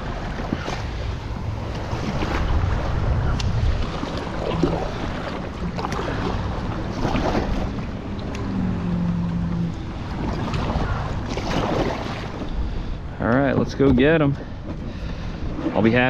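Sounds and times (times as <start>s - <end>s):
paddle strokes splashing water: 0.0s - 8.6s, 9.5s - 12.9s
wind buffeting microphone: 0.0s - 16.0s.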